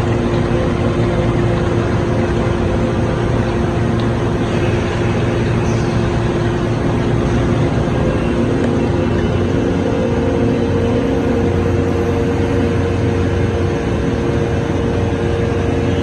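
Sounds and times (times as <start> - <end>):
machinery hum with steady tones: 0.0 - 16.0.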